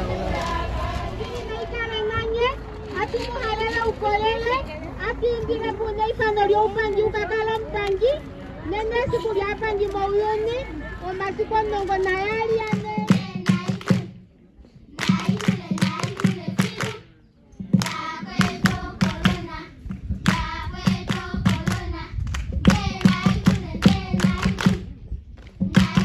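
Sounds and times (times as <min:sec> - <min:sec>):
rhythmic hand clapping: 0:09.9 - 0:14.2, 0:14.9 - 0:17.1, 0:17.7 - 0:26.0.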